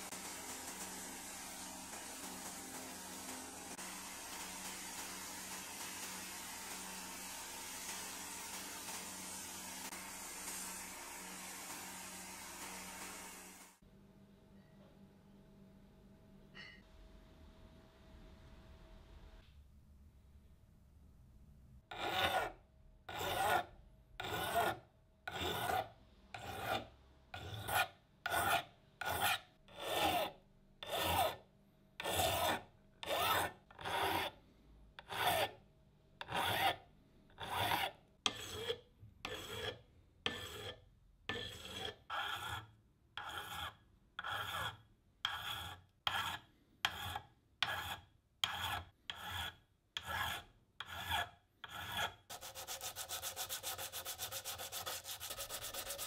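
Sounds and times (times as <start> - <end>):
file rasping on brass: 21.9 - 31.4, 32.0 - 34.4, 35.0 - 35.6, 36.2 - 56.0.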